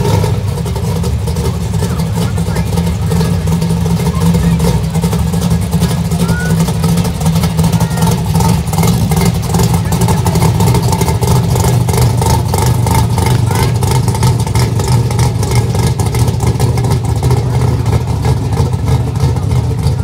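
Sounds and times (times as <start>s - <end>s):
car exhaust rumble: 0.0s - 20.0s.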